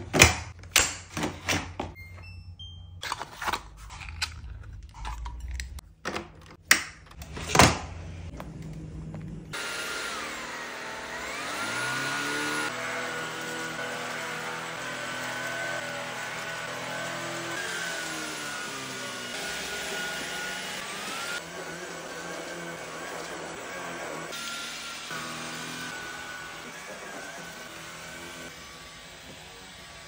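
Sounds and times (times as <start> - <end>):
vacuum motor whirring: 9.5 - 30.0.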